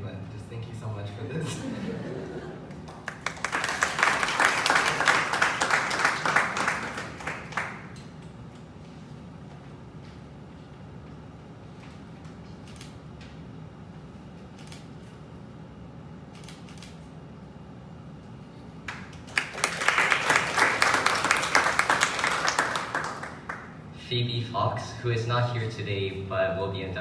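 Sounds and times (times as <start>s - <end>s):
audience applause: 2.7s - 7.9s, 18.9s - 23.7s.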